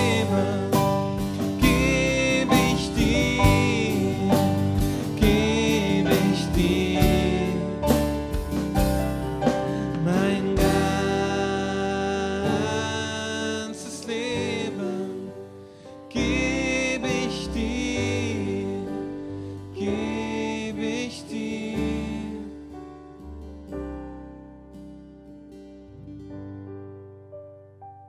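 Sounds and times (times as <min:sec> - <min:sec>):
man singing with vibrato: 0:00.0 - 0:08.3, 0:09.7 - 0:15.5, 0:16.1 - 0:22.6
keyboard and acoustic guitar: 0:00.0 - 0:27.8.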